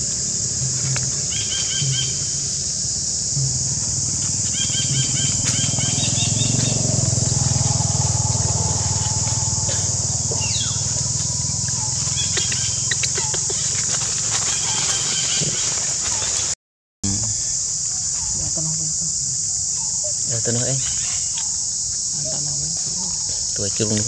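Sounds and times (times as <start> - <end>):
dry leaves rustling: 0.0 - 16.6
steady high hiss: 0.0 - 24.0
monkey chirping calls: 1.3 - 2.6, 4.0 - 7.9, 8.5 - 16.5.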